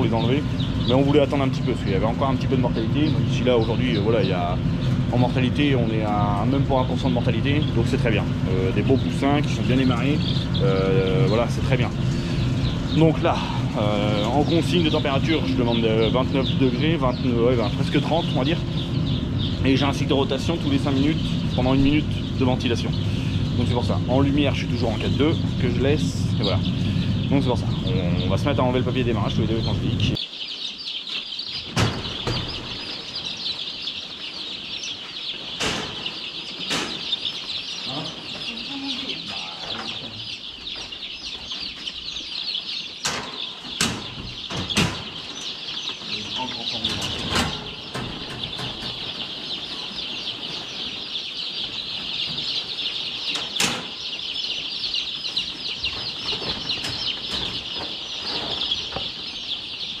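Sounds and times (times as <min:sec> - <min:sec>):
chicks peeping in chorus: 0:00.0 - 1:00.0
sharp knocks: 0:31.7 - 0:32.8, 0:35.6 - 0:37.1, 0:43.0 - 0:45.3.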